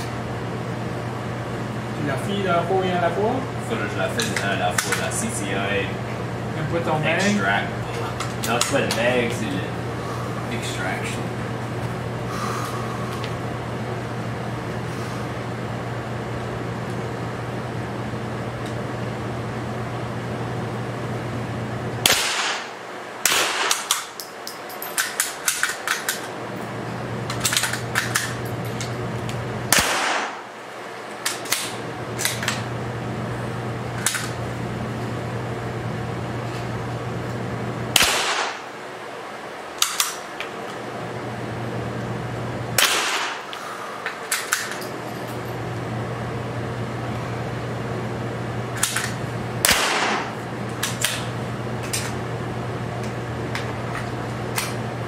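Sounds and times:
steady low hum: 0.0 - 55.0
rifle shots echoing: 22.0 - 24.1, 29.7 - 30.6, 37.9 - 38.7, 42.8 - 43.5, 49.6 - 50.4.

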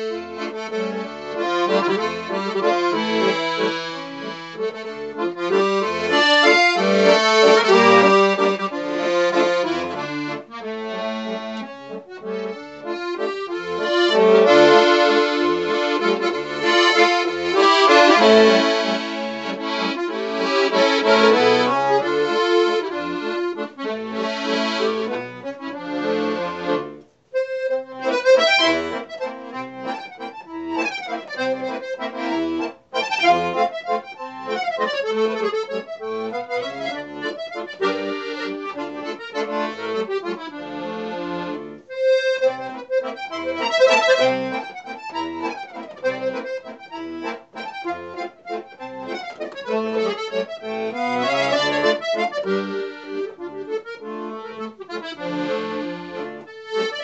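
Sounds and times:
solo accordion waltz: 0.0 - 57.0.

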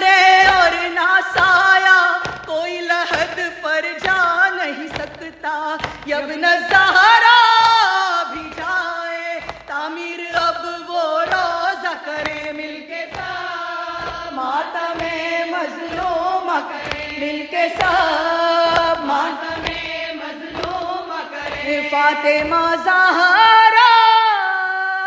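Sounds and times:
lament chant singing: 0.0 - 24.8
low thumping beat: 12.2 - 21.8.

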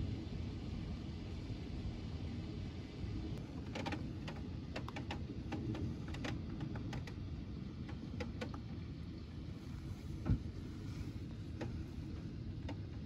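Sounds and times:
low steady rumble: 0.0 - 13.0
raindrops ticking against glass: 3.6 - 8.9.

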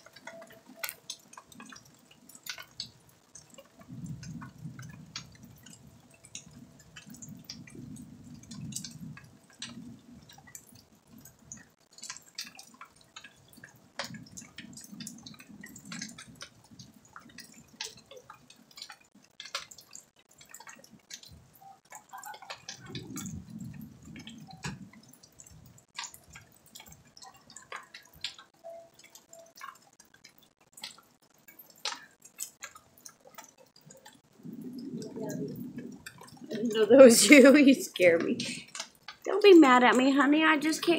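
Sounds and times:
rain dripping: 0.0 - 40.9
low rumbles: 22.7 - 26.5, 33.9 - 38.8.

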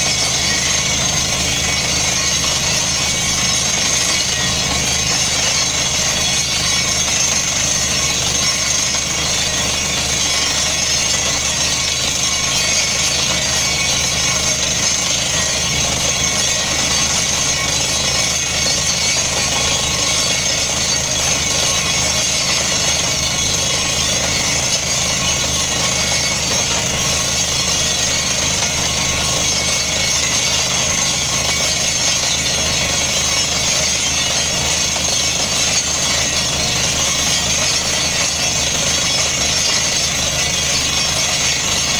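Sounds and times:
drilling rig engine and compressor: 0.0 - 41.9.

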